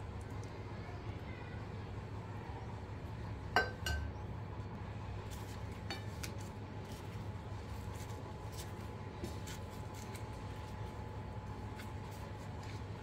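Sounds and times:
dishes tapping on a plate: 0:03.6 - 0:04.1.

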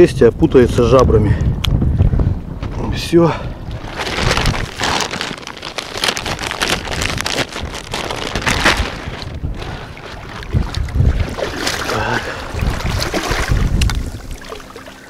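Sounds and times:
water splashing and dripping: 0:09.1 - 0:15.0.

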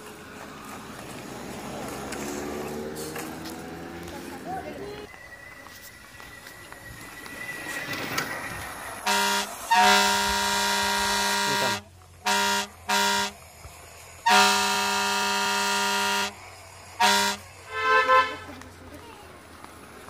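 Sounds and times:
vehicle horn honking: 0:09.0 - 0:13.4, 0:14.2 - 0:16.4, 0:17.0 - 0:18.6.

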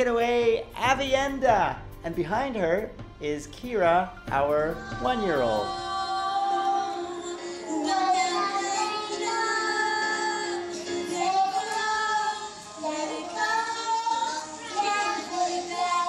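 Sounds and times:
girl singing: 0:04.7 - 0:16.0.

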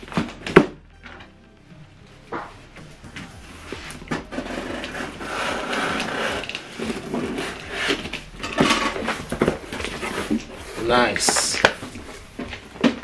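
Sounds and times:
blade cutting packing tape: 0:04.2 - 0:10.8.

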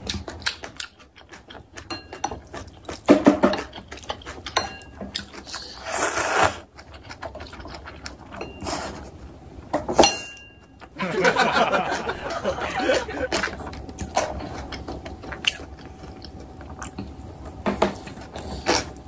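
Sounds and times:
chewing with wet mouth clicks: 0:00.0 - 0:05.8, 0:06.6 - 0:08.9, 0:13.3 - 0:19.0
slurping noodles: 0:05.4 - 0:06.7, 0:18.0 - 0:19.0.

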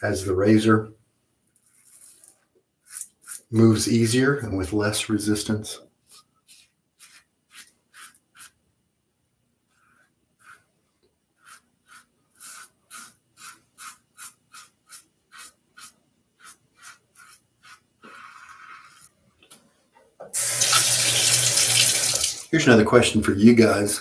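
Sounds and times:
razor scraping stubble: 0:01.6 - 0:04.1, 0:06.1 - 0:08.6, 0:11.4 - 0:19.1.

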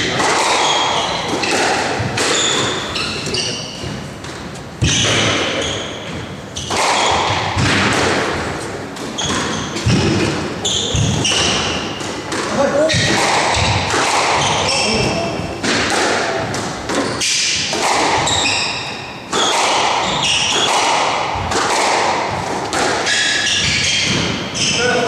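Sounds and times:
squash ball striking rackets and walls: 0:00.0 - 0:25.0
shoes squeaking on wooden floor: 0:00.6 - 0:07.3, 0:09.0 - 0:13.8, 0:17.0 - 0:17.5.

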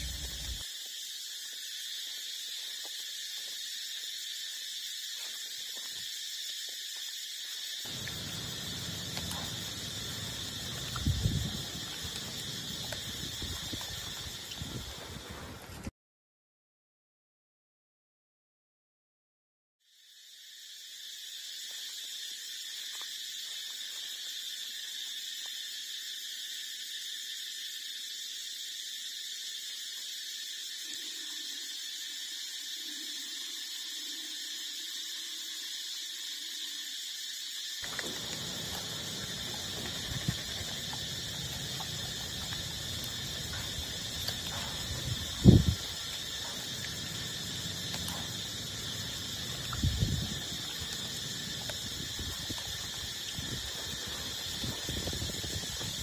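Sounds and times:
shrill insect chorus: 0:00.0 - 0:15.9, 0:19.8 - 0:56.0.

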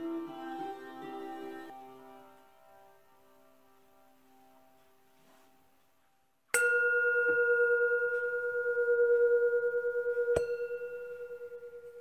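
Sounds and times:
metal bell ringing: 0:06.6 - 0:12.0.

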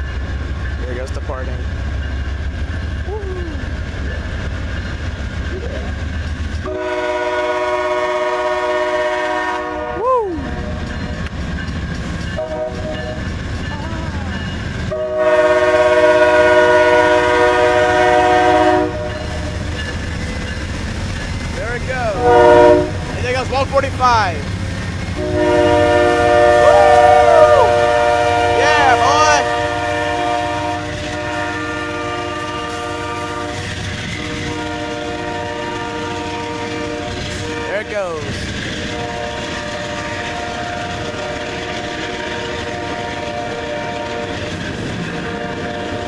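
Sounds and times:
train rumble: 0:00.0 - 0:46.0
locomotive air horn blast: 0:06.6 - 0:10.0, 0:12.4 - 0:13.0, 0:14.9 - 0:19.4, 0:22.2 - 0:23.2, 0:25.2 - 0:37.8, 0:38.8 - 0:41.4, 0:42.2 - 0:44.4.

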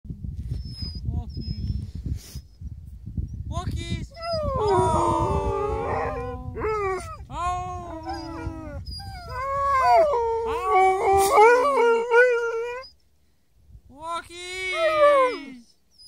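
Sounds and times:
dogs howling together: 0:04.2 - 0:12.8.

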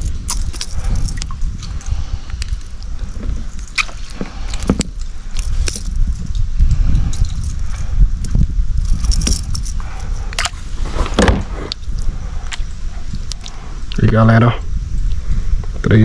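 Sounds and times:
water sloshing against a kayak: 0:00.0 - 0:06.1
steady low rumble: 0:00.0 - 0:16.0.

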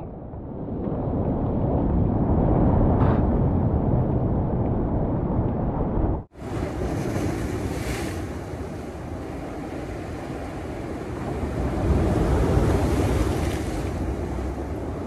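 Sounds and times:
wind buffeting microphone: 0:00.0 - 0:15.0
ocean waves breaking on rocks: 0:06.4 - 0:15.0.

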